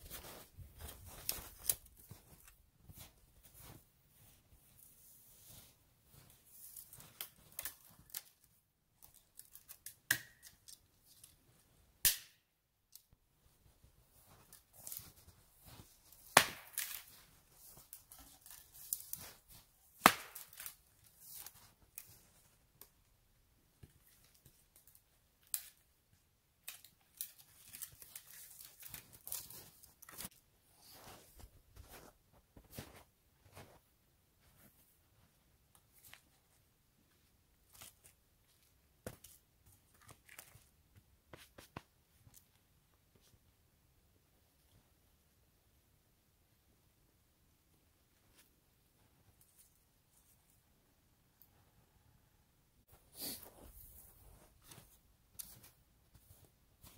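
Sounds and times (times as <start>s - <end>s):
footsteps crunching through snow: 0.0s - 3.8s
sticks and twigs snapping: 6.7s - 11.4s, 12.0s - 13.1s, 16.2s - 17.2s, 20.0s - 20.8s
loud sharp stick cracks: 12.0s - 12.4s, 20.0s - 20.4s.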